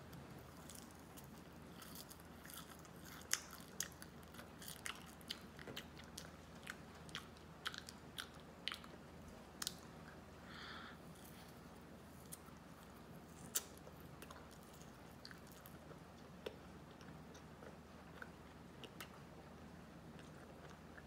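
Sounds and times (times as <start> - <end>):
child chewing marshmallows: 0.0 - 21.0.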